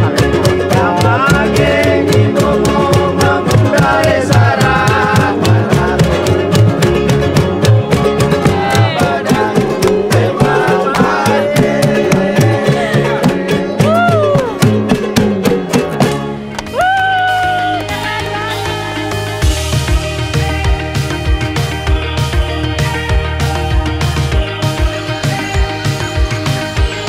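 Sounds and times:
person singing: 0.0s - 14.8s
string band music: 0.0s - 27.0s.

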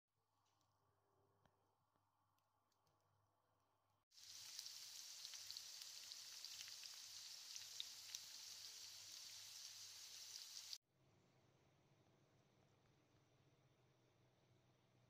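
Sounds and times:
fries sizzling in hot oil: 4.1s - 10.8s.

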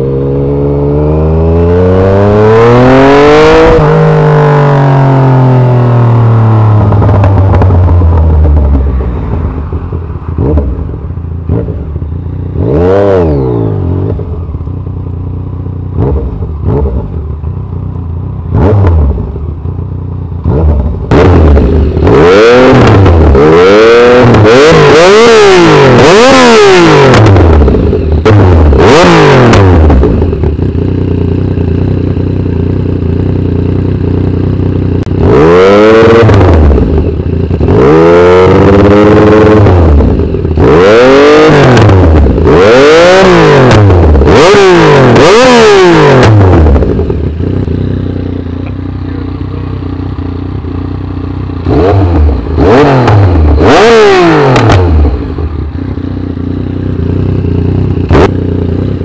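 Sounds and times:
motorcycle throttle blips: 0.0s - 59.0s
motorcycle engine idling: 6.6s - 12.8s, 13.6s - 23.3s, 27.4s - 28.8s, 29.7s - 35.4s, 36.6s - 37.9s, 46.4s - 59.0s.

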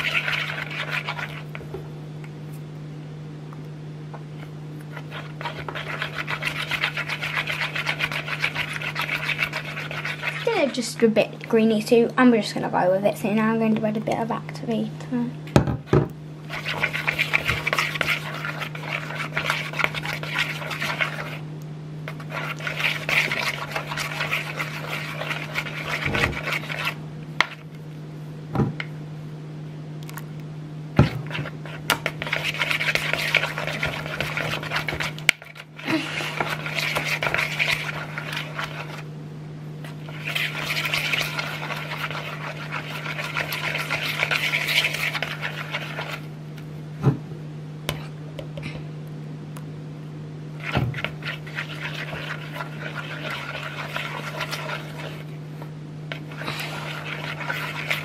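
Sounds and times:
stick stirring slime in bowl: 0.0s - 1.8s, 4.3s - 14.4s, 16.4s - 21.4s, 22.0s - 27.9s, 31.0s - 39.1s, 39.8s - 46.3s, 50.6s - 58.0s.

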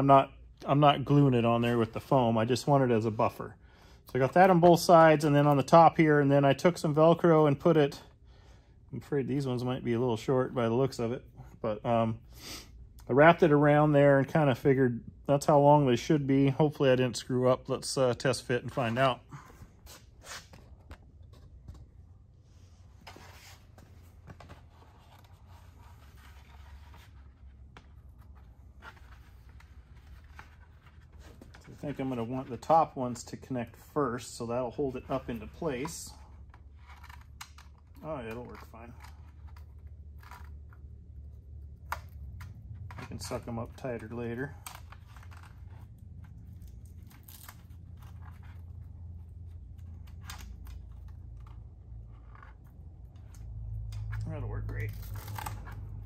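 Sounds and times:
velcro rips and clicks: 44.6s - 48.7s, 54.8s - 56.0s.

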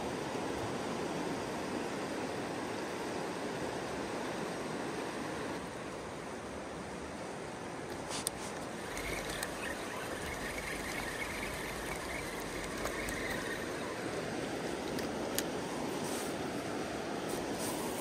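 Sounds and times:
river rushing: 0.0s - 18.0s
faint clicks: 7.9s - 13.8s.

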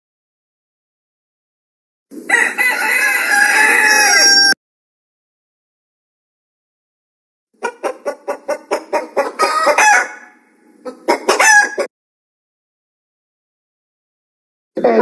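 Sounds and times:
chicken cackling: 2.1s - 4.6s, 7.6s - 11.9s
chicken clucking: 7.6s - 11.9s.

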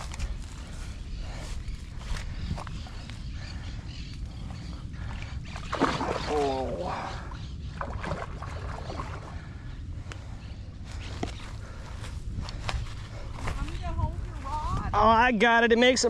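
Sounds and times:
wind rumble on microphone: 0.0s - 15.6s.

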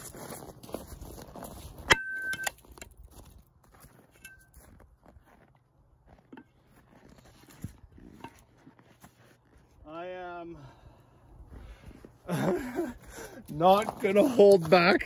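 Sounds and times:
metallic clang ringing: 1.9s - 2.6s.

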